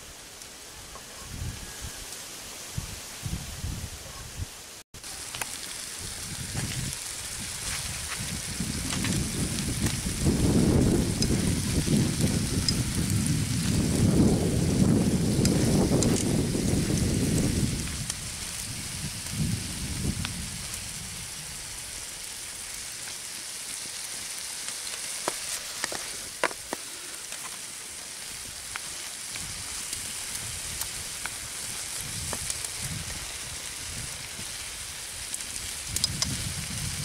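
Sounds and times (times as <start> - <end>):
food sizzling in a frying pan: 5.0 - 37.0
sharp pops: 25.0 - 27.6.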